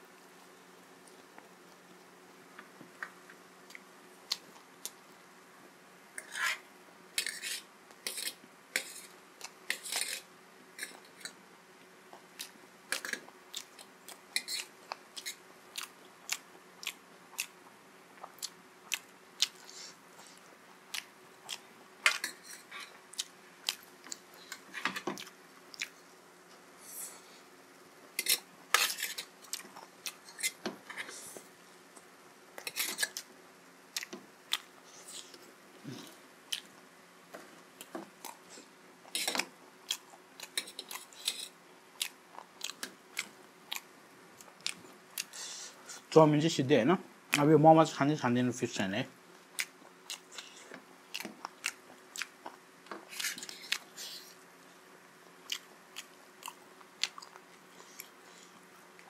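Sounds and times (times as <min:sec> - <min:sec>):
faint steady hum: 0:00.0 - 0:59.0
chewing noodles: 0:49.5 - 0:54.4.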